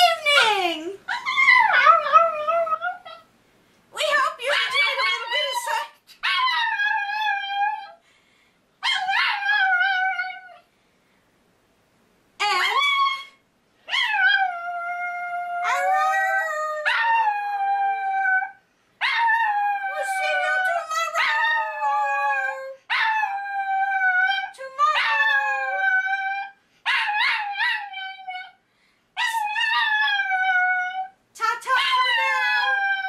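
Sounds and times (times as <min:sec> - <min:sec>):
dog howling: 0:12.4 - 0:28.6.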